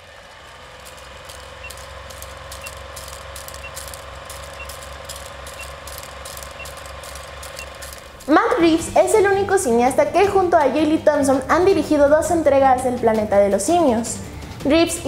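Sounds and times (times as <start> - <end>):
film projector whirring clatter: 0.0 - 8.7
short high beeps: 1.6 - 8.0.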